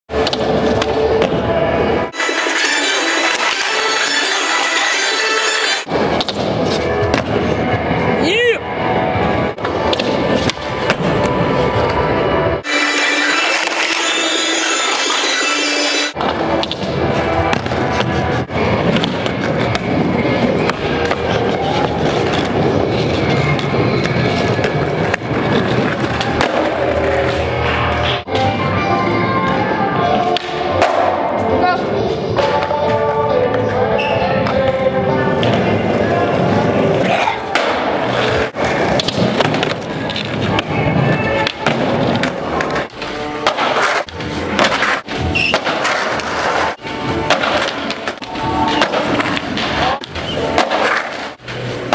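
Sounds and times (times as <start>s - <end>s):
skateboard wheels rolling: 13.3s - 31.3s, 32.2s - 51.9s
skateboard clacks: 38.8s - 51.9s.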